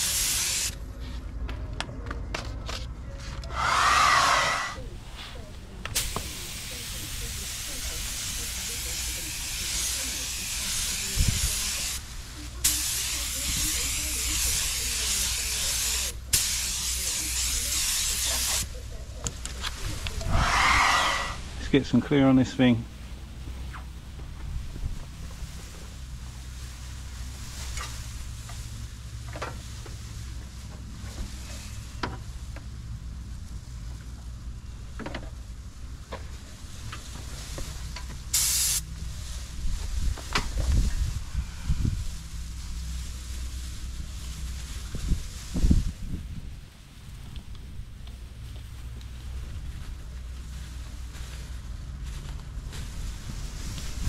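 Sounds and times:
spray gun air hissing: 0.0s - 0.8s, 3.5s - 4.8s, 6.0s - 12.0s, 12.6s - 18.7s, 20.2s - 21.4s, 38.3s - 38.9s.

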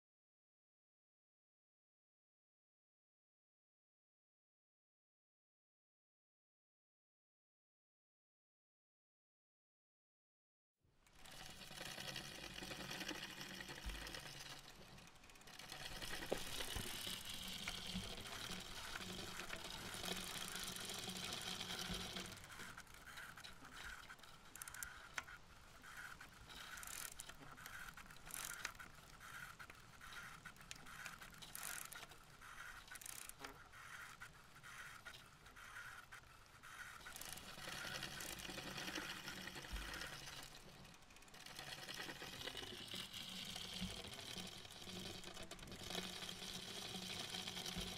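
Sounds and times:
bicycle freewheel ticking: 11.1s - 47.9s
bicycle tyre noise: 11.1s - 47.9s.

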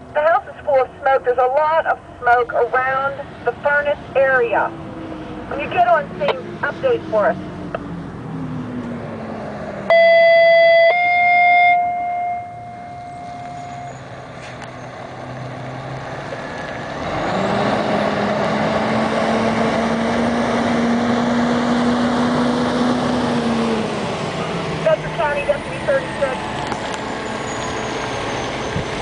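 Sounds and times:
fire engine diesel engine: 0.0s - 29.0s
two-tone pager alert: 9.9s - 14.0s.

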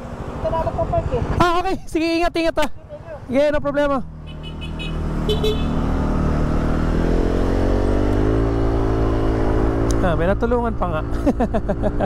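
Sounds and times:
road and wind noise: 0.0s - 12.0s
motorcycle engine accelerating: 2.8s - 12.0s.

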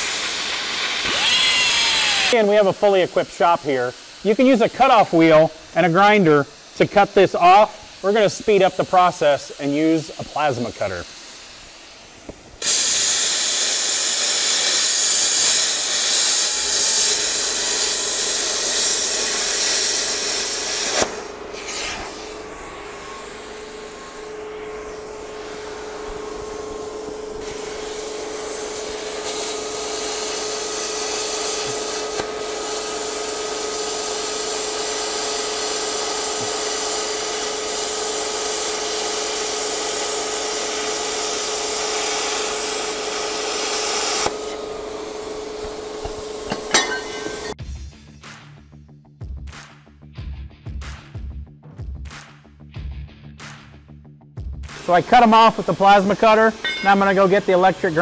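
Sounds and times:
plasma cutter hissing: 0.0s - 47.6s, 54.8s - 58.0s
torch click: 0.1s - 2.4s, 12.2s - 28.0s, 31.0s - 33.2s, 43.4s - 47.6s
steady hum: 1.9s - 35.0s, 40.6s - 47.6s.

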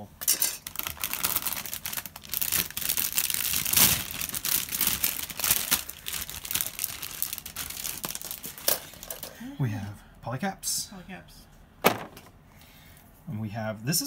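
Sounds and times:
plastic bags crinkling: 0.6s - 9.4s.

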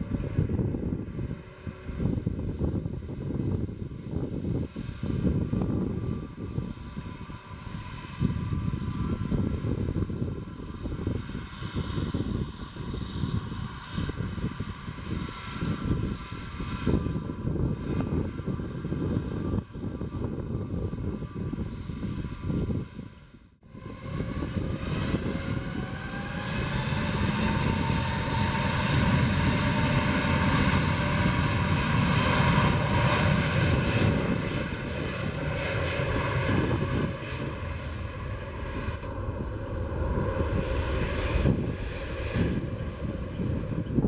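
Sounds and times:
jet engines spooling up: 23.7s - 44.0s
jet takeoff roll: 23.7s - 44.0s.

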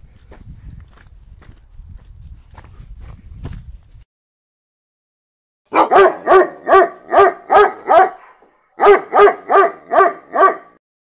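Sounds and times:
dog barking: 5.7s - 10.8s.

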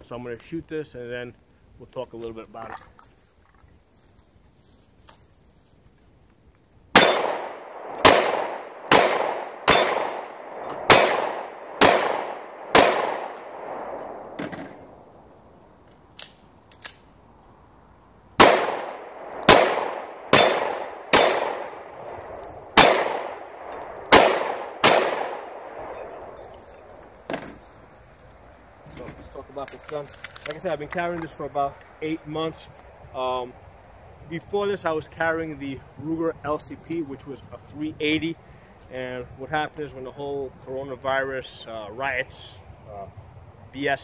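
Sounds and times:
pistol shots: 7.0s - 15.0s, 18.4s - 26.5s.

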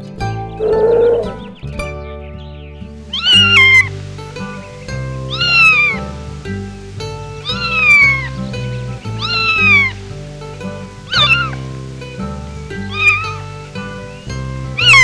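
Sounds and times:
background music: 0.0s - 15.0s
cat meowing: 5.3s - 6.0s, 7.4s - 8.3s, 9.2s - 9.9s, 11.1s - 11.5s, 12.9s - 13.2s, 14.8s - 15.0s.

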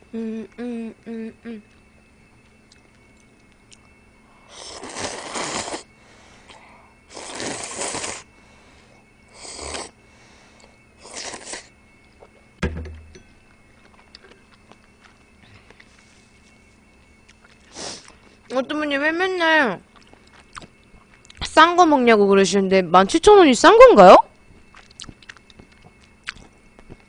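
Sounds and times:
slurping noodles and broth: 4.5s - 5.9s, 7.1s - 8.3s, 9.4s - 10.0s, 11.0s - 11.7s
sharp knock: 12.6s - 13.2s.

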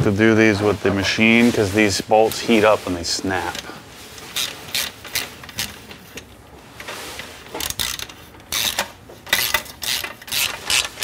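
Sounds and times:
ratchet wrench clicking: 7.6s - 11.0s.

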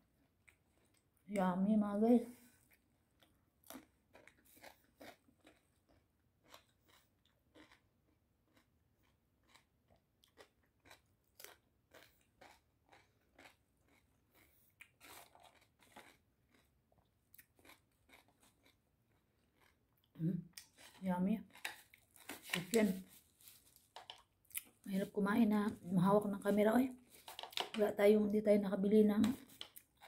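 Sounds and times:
person chewing crunchy food: 2.6s - 24.8s, 29.5s - 30.0s.

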